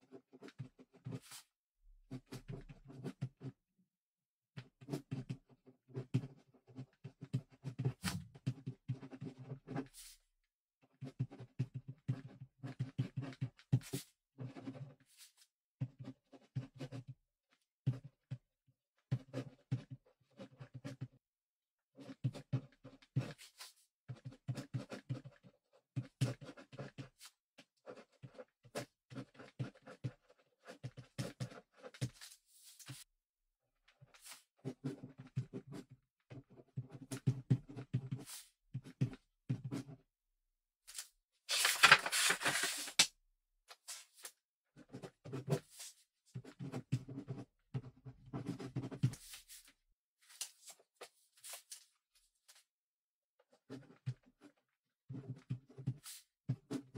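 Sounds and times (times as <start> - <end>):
ballpoint pen scratching paper: 0.1 - 1.5, 2.1 - 3.5, 4.8 - 10.1, 10.9 - 15.2, 15.8 - 17.1, 19.1 - 21.1, 22.0 - 33.1, 33.9 - 40.0, 43.8 - 49.7, 53.4 - 56.9.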